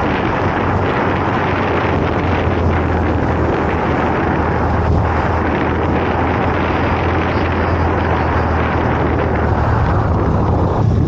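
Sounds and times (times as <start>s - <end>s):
motorcycle engine humming: 0.0s - 11.0s
wind rushing over microphone: 0.0s - 11.0s.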